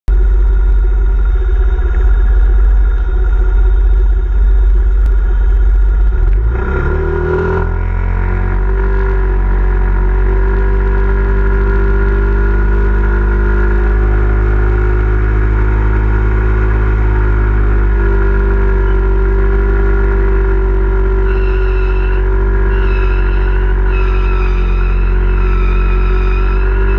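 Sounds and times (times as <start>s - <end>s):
scooter engine revving: 6.2s - 26.9s.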